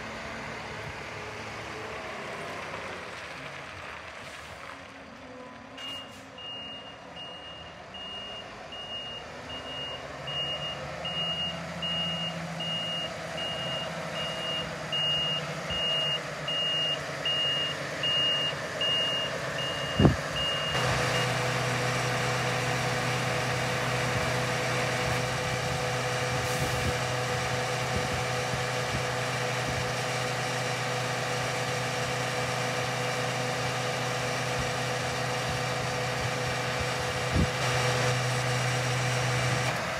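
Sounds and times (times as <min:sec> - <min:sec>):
truck engine running: 0:00.0 - 0:05.3, 0:05.9 - 0:39.9
reversing alarm beeps: 0:05.8 - 0:21.4.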